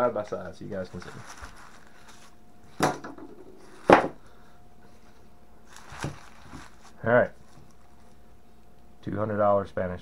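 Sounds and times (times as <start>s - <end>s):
wooden rifle stocks knocking on table: 2.8s - 4.2s.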